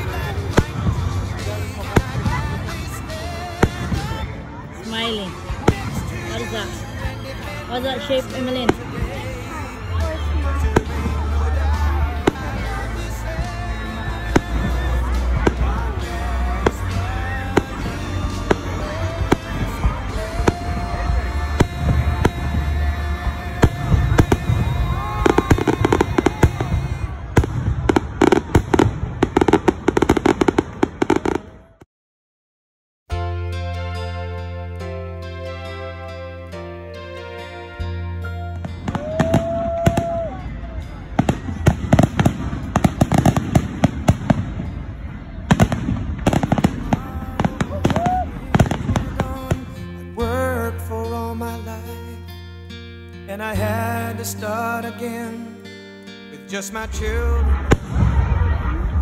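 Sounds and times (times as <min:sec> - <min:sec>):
fireworks bangs: 0:00.0 - 0:06.8, 0:14.1 - 0:31.8, 0:38.6 - 0:49.8, 0:56.8 - 0:59.0
rapid fireworks crackling: 0:00.0 - 0:31.8, 0:38.6 - 0:50.0, 0:56.8 - 0:59.0.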